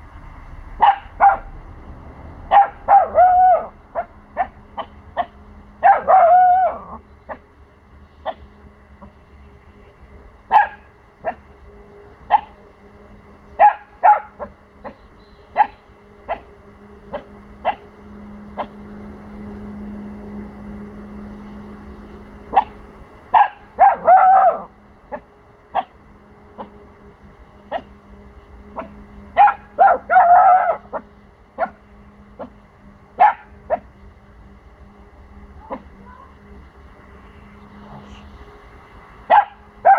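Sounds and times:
puppy barking: 0.8 - 1.5, 2.5 - 7.4, 8.2 - 8.5, 10.5 - 11.4, 12.3 - 12.6, 13.6 - 15.0, 15.6 - 16.5, 17.1 - 17.9, 22.5 - 26.0, 27.7 - 27.9, 28.7 - 31.8, 32.4 - 32.6, 33.2 - 33.9, 39.3 - 39.9.

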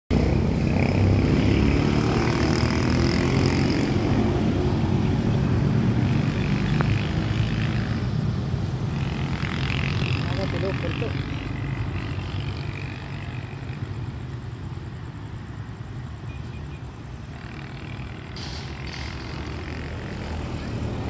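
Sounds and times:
hiss: 18.4 - 19.4.

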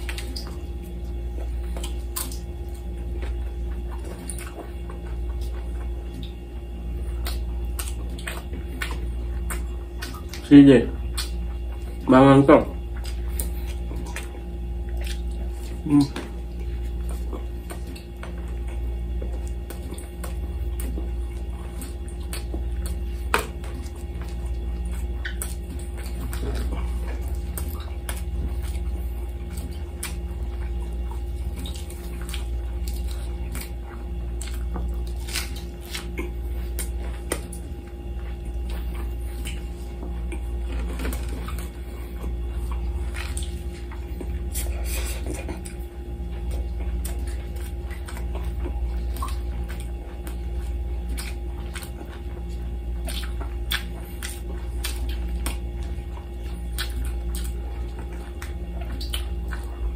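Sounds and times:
chewing and mouth clicks: 0.0 - 59.9
steady low hum: 0.0 - 59.9
hands tearing meat on plate: 19.4 - 45.8.

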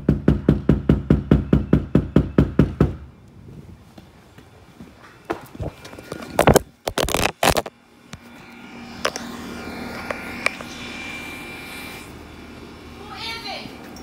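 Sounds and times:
low hum: 0.0 - 14.0
phone being handled: 5.9 - 7.7.

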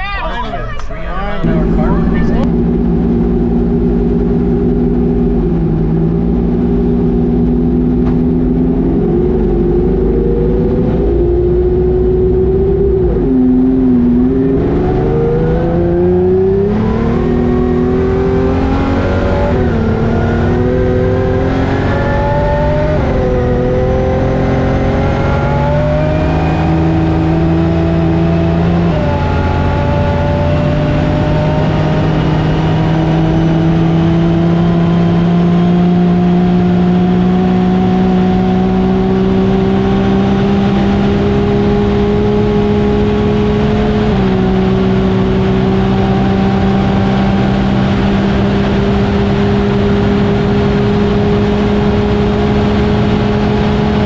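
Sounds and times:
race engine at full throttle: 0.7 - 54.0.

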